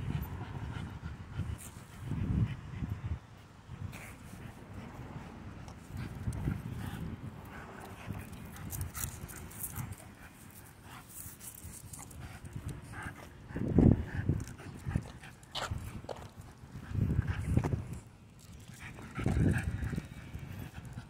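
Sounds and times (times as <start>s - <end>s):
dog panting: 18.4s - 21.0s.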